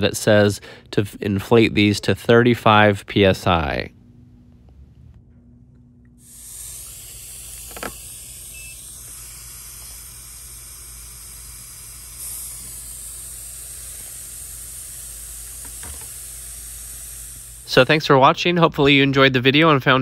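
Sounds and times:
air hissing through tyre valve: 0:06.2 - 0:18.3.

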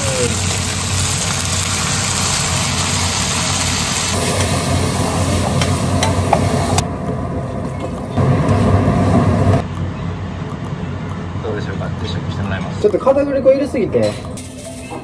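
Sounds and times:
food sizzling in a frying pan: 0:00.0 - 0:06.8.

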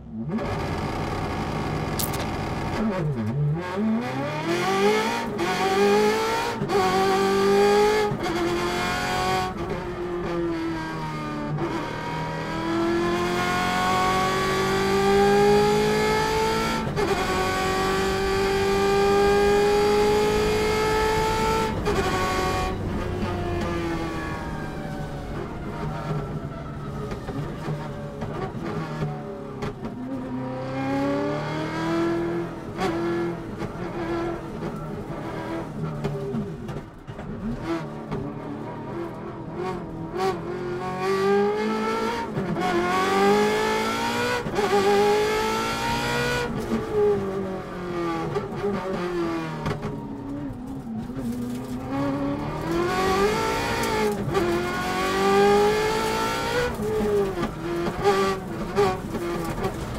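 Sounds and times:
rally car engine revving: 0:00.0 - 0:26.4, 0:27.3 - 0:59.9.

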